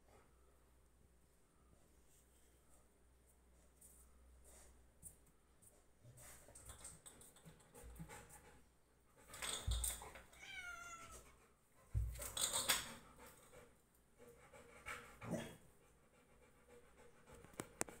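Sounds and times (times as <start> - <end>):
cat meowing: 10.3 - 11.3.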